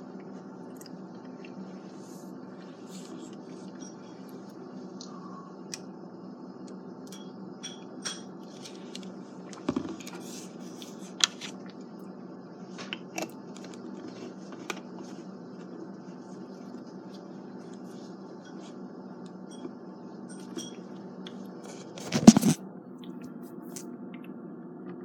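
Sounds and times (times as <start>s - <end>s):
steady background hum: 0.0s - 25.0s.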